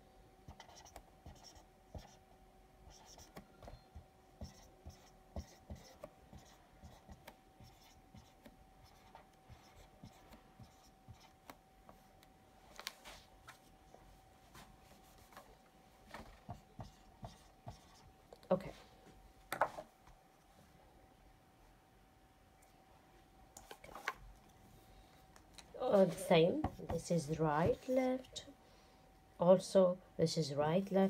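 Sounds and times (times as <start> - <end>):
faint steady hum: 0.0 - 31.0
marker scratching on whiteboard: 0.5 - 2.2, 2.8 - 12.1, 16.1 - 18.2, 26.6 - 28.1.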